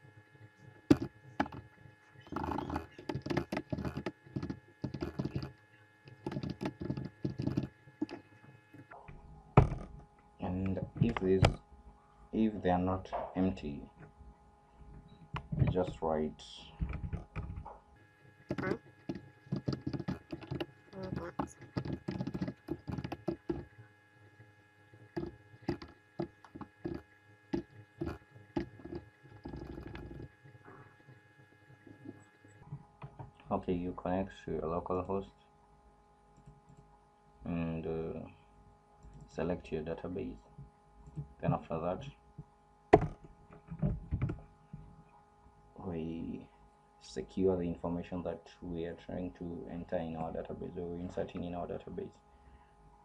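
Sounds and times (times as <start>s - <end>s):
steady electrical hum: 0.0s - 53.0s
typing on computer keyboard: 2.3s - 5.5s, 6.1s - 8.2s, 18.5s - 23.6s.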